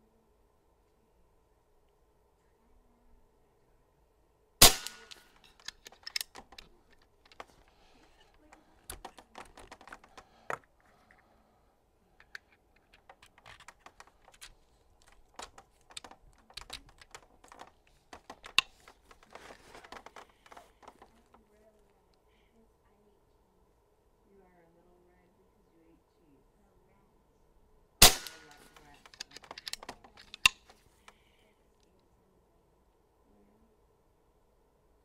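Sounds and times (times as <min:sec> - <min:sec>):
air rifle shot: 0:04.6 - 0:05.4, 0:28.0 - 0:28.7
rifle handling clicks and knocks: 0:04.6 - 0:11.2, 0:12.2 - 0:21.4, 0:28.0 - 0:31.2.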